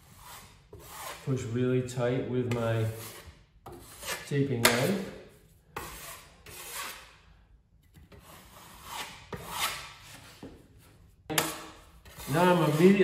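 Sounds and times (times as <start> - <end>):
taping knife scraping wall: 0.0 - 1.4, 2.5 - 7.2, 8.0 - 13.0.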